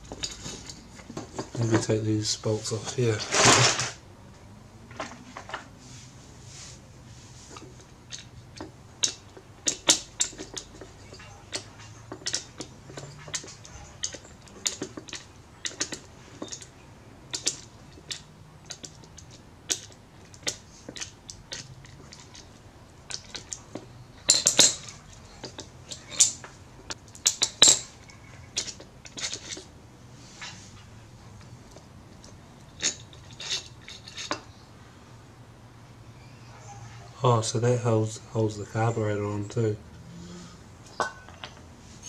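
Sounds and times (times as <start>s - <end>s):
metal parts clattering: 0.0s - 2.0s, 2.7s - 4.0s, 23.1s - 26.5s, 27.2s - 29.6s, 32.7s - 34.5s
metal tools and parts clinking: 0.0s - 4.0s, 7.5s - 16.7s, 17.3s - 29.7s, 31.7s - 34.6s, 40.8s - 42.0s.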